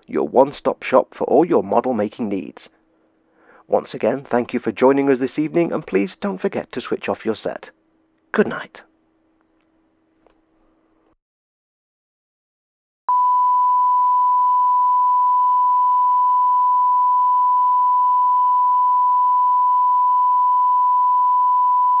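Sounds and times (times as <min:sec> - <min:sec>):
steady single-pitched test tone: 0:13.1 - 0:22.0.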